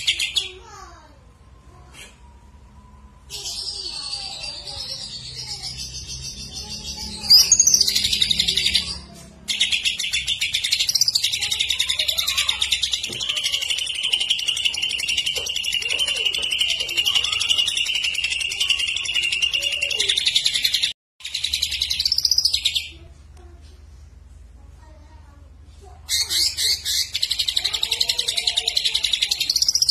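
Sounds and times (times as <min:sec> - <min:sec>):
bird singing rapid trill: 0:02.5 - 0:23.0, 0:26.1 - 0:29.9
bird song phrase: 0:03.2 - 0:23.1.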